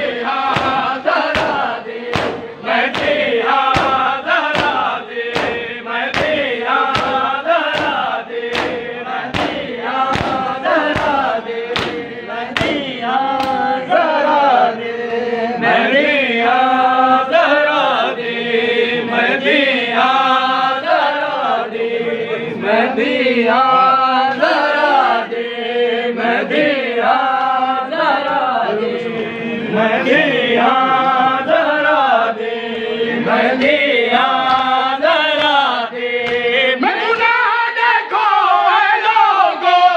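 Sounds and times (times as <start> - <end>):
men chanting: 0.0 - 39.9
hands beating on chests: 0.4 - 13.6, 36.2 - 37.4.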